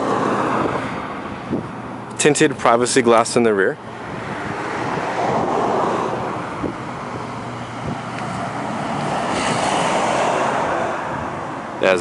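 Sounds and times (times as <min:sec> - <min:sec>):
wind buffeting the microphone: 0:00.0 - 0:02.0, 0:03.9 - 0:11.8
low vehicle rumble: 0:03.7 - 0:11.8.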